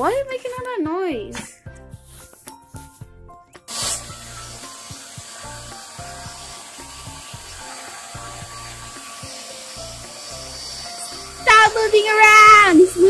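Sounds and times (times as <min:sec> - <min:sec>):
hair dryer blowing: 0:03.7 - 0:13.0.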